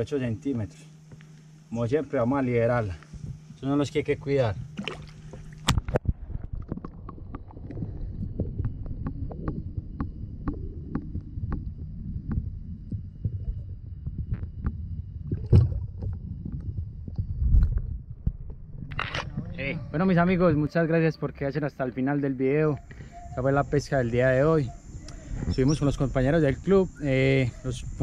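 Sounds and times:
low underwater rumble: 4.5s - 20.7s
water splashes: 4.7s - 12.5s
underwater clicks and knocks: 4.7s - 19.5s.

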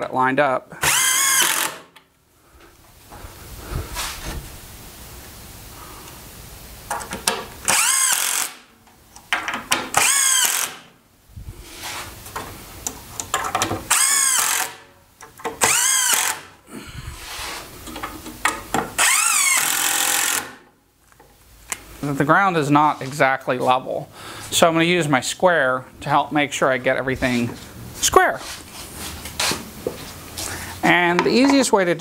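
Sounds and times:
drill motor whine: 0.8s - 1.7s, 7.7s - 8.5s, 10.0s - 10.7s, 15.7s - 16.4s, 19.0s - 20.4s.

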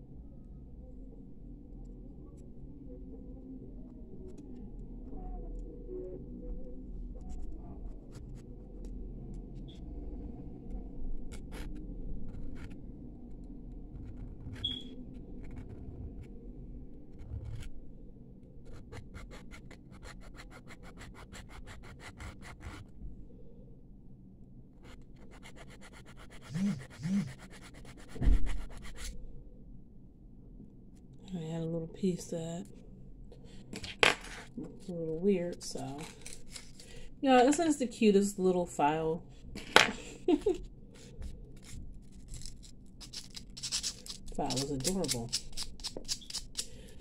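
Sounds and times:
needle file scraping metal: 25.2s - 29.1s, 41.6s - 46.8s.

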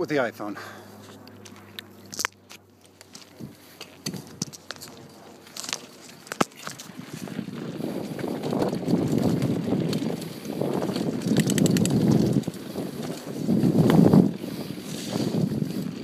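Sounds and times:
bicycle tyres on rough ground: 0.0s - 16.0s
wind on microphone: 6.6s - 16.0s
rattle of clicks: 11.2s - 12.4s.

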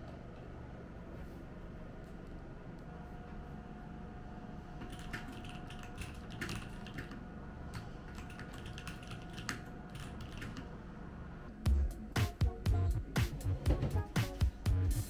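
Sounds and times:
low background hum: 0.0s - 15.0s
music: 11.5s - 15.0s.

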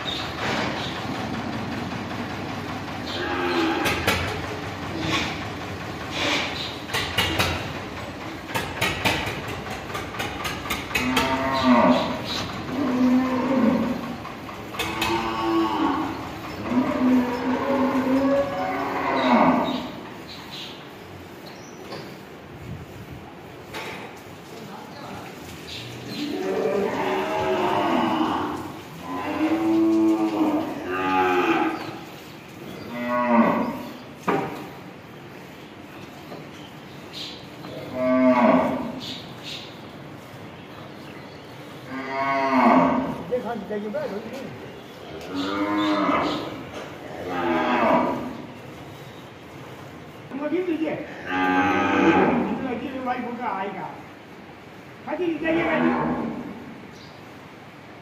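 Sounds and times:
cattle mooing: 11.0s - 20.0s, 26.1s - 32.0s, 32.9s - 33.8s, 37.8s - 39.0s, 41.9s - 43.2s, 45.2s - 48.4s, 51.1s - 52.6s, 55.5s - 56.7s.

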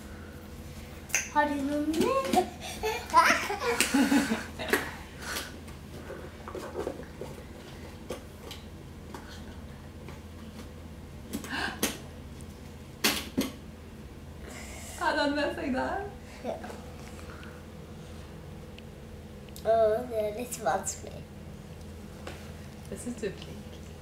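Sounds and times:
child's voice: 1.3s - 3.4s, 19.6s - 21.3s.

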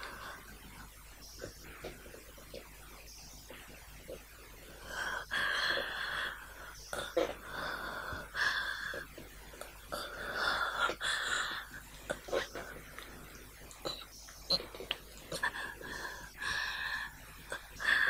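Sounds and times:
man breathing heavily: 4.2s - 13.6s, 15.1s - 18.0s.

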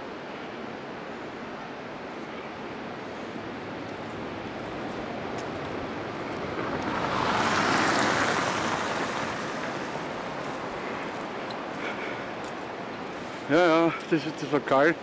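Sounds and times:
river rushing: 0.0s - 15.0s.

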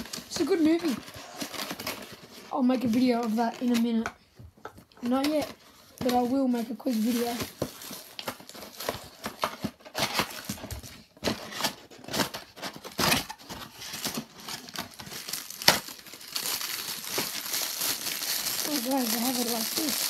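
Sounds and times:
cardboard box packaging rustling: 0.0s - 4.0s, 4.8s - 20.0s.

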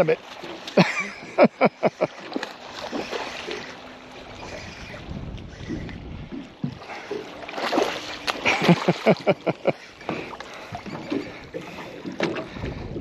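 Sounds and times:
fish splashing at water surface: 2.0s - 4.7s, 6.8s - 10.7s.

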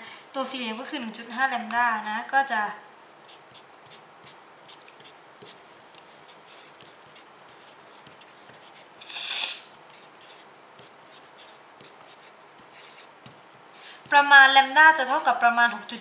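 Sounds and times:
marker pen writing on paper: 3.2s - 14.2s.

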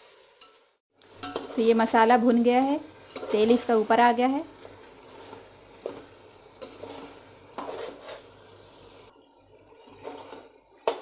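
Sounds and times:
masala sizzling faintly: 0.0s - 11.0s
spoon scraping metal pot: 6.6s - 8.3s.

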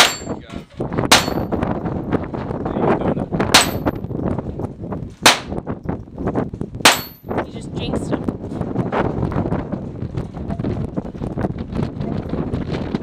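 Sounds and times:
handgun shots: 1.1s - 1.5s, 3.6s - 3.9s, 5.3s - 5.6s, 6.9s - 7.2s.

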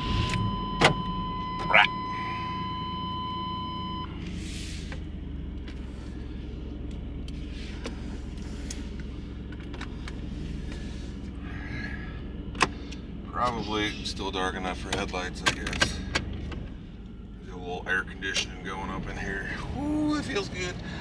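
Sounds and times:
dashboard warning tone: 0.0s - 4.2s
van engine idling: 0.0s - 21.0s.

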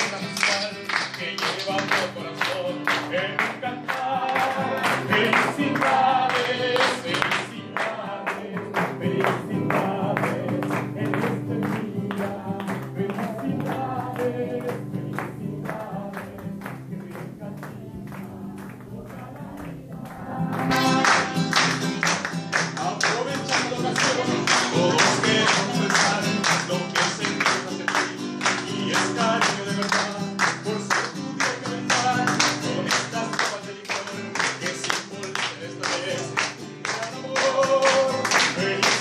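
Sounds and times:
acoustic guitar strumming: 0.0s - 39.0s
group singing: 0.0s - 39.0s
hands clapping: 0.0s - 39.0s.

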